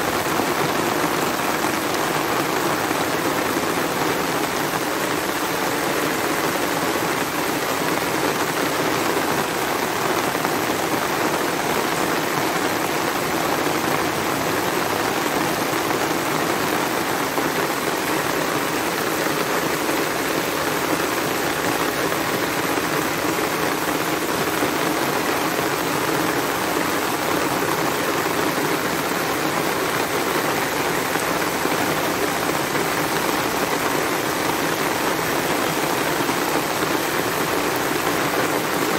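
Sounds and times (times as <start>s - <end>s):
heavy rain on pavement and trees: 0.0s - 38.9s.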